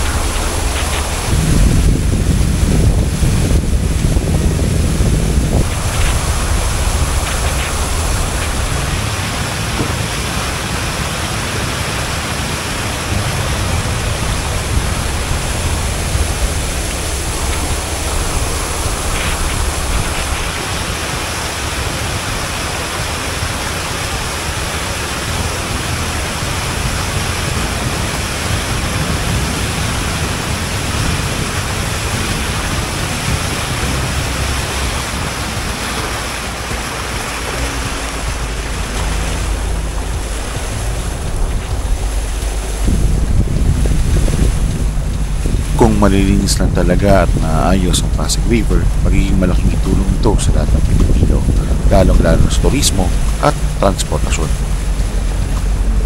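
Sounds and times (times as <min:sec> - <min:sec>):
low engine rumble: 0:00.0 - 0:56.0
water rushing along hull: 0:00.0 - 0:56.0.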